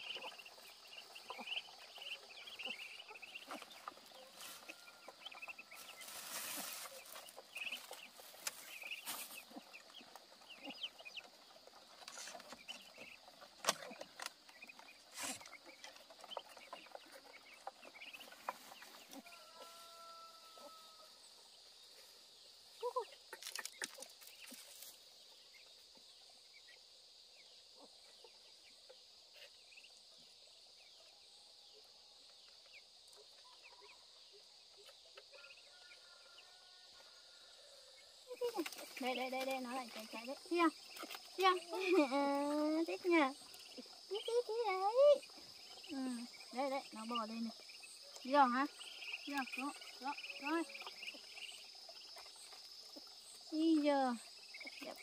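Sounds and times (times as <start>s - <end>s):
chicks peeping: 0.0s - 21.0s, 37.8s - 55.0s
chickens clucking: 0.0s - 26.9s, 31.8s - 55.0s.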